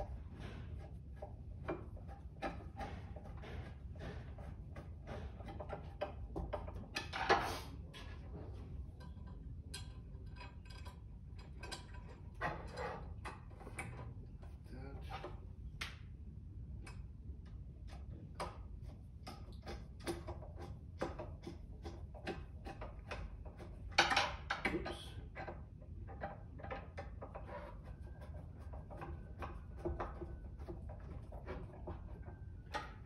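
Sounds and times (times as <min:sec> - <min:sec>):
scraping rasp: 0:00.0 - 0:09.3, 0:25.2 - 0:33.0.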